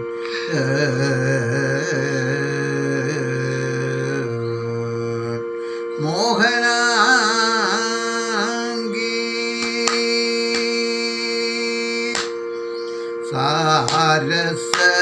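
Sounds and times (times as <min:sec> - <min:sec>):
man singing with pitch ornaments: 0:00.0 - 0:15.0
steady drone: 0:00.0 - 0:15.0
sharp taps: 0:13.8 - 0:14.1.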